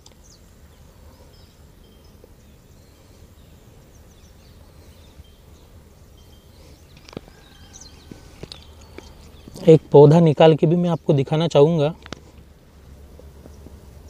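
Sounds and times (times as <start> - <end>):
faint bird chirps: 0.0 - 10.1.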